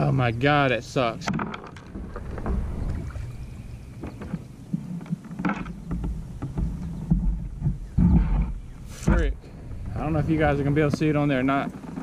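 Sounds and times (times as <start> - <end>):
fishing rod clicks and knocks: 1.2 - 2.6
thumps against kayak hull: 3.9 - 9.4.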